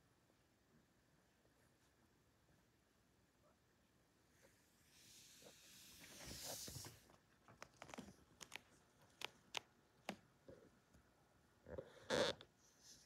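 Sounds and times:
claws clicking on hardwood floor: 7.4s - 10.3s.

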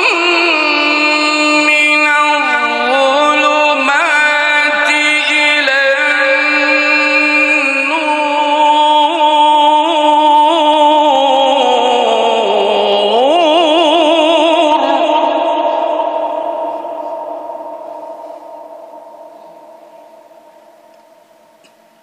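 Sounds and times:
man reciting melodically: 0.0s - 15.7s.

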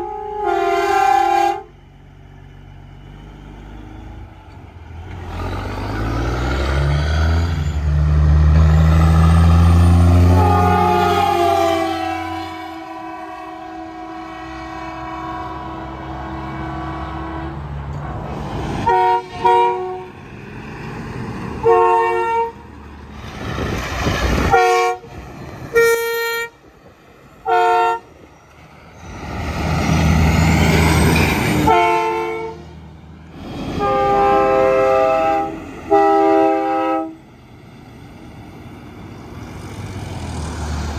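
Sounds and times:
truck train horns blowing: 0.0s - 1.9s, 9.5s - 17.9s, 18.8s - 20.2s, 21.6s - 22.7s, 24.4s - 26.7s, 27.4s - 28.2s, 30.6s - 32.9s, 33.6s - 37.3s
diesel engine and tyre noise: 0.0s - 40.9s.

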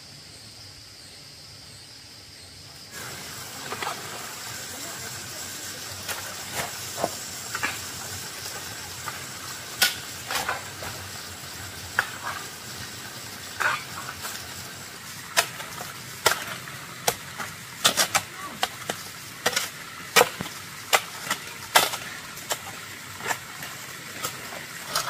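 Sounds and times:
steady hiss: 0.0s - 25.0s
sharp knocks and scrapes: 6.0s - 11.2s, 11.9s - 12.9s, 13.5s - 14.4s, 15.3s - 25.0s.

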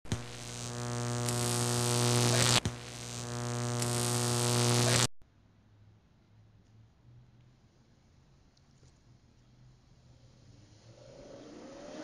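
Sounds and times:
buzzing synthesized drone: 0.0s - 5.1s
rising hiss: 10.4s - 12.0s.

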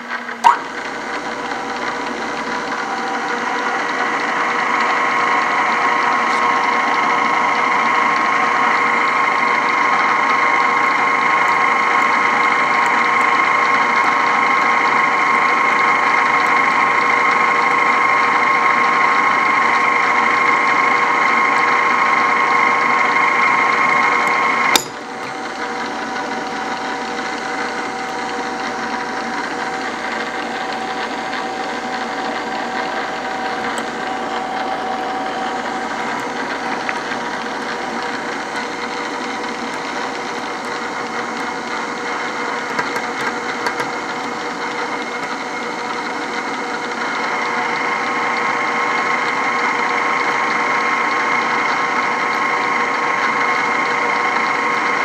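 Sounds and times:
drill press gear whine: 0.0s - 55.0s
sharp click: 0.4s - 0.7s.

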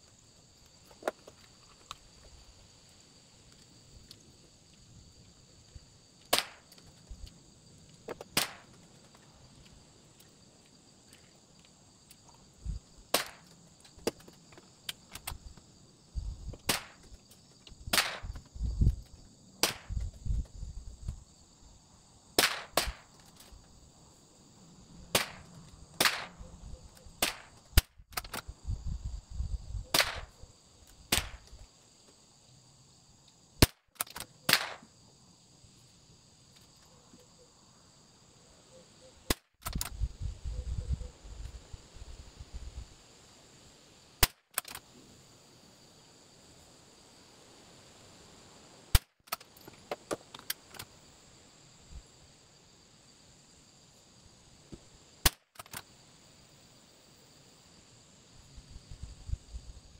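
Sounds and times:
high insect buzz: 0.0s - 59.9s
rifle shots cracking: 22.4s - 23.0s, 25.1s - 26.4s, 29.9s - 30.3s, 34.5s - 34.9s.

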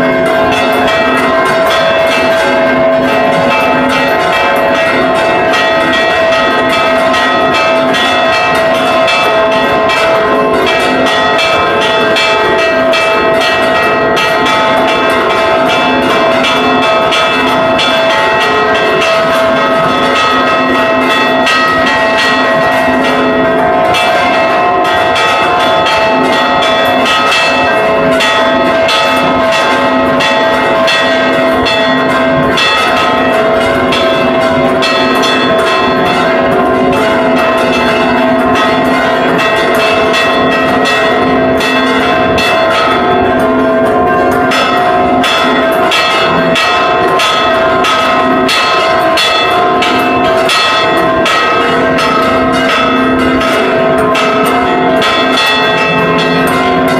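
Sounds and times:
church bells ringing fast: 0.0s - 56.9s.

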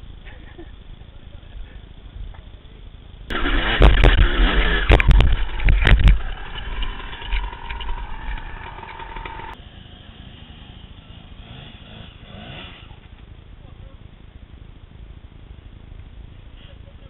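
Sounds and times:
sharp knocks and clatter: 3.3s - 9.6s
dirt bike engine revving: 3.3s - 13.2s.

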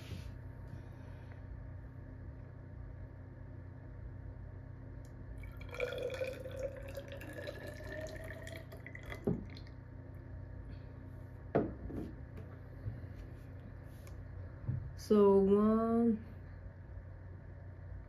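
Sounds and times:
water pouring into plastic cylinder: 5.4s - 9.8s.

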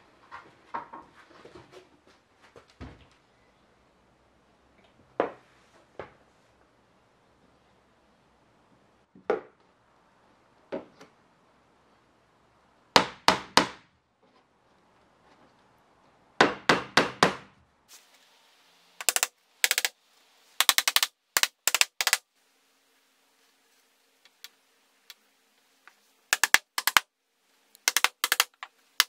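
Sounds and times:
hammer striking nails into wood: 13.0s - 13.9s, 16.4s - 17.5s, 19.0s - 19.9s, 20.6s - 22.2s, 26.4s - 27.0s, 27.9s - 28.7s.

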